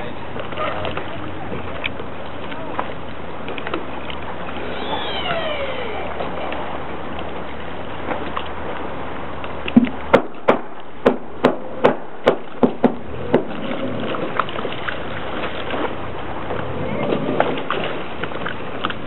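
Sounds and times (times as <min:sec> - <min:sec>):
low steady rumble: 0:00.0 - 0:19.0
boat hull knocking against lift: 0:09.8 - 0:13.6.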